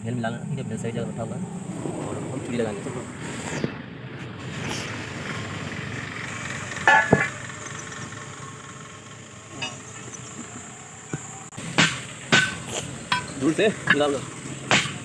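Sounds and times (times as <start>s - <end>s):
ringing metal clank: 6.9s - 7.4s, 9.5s - 10.2s, 12.3s - 14.2s.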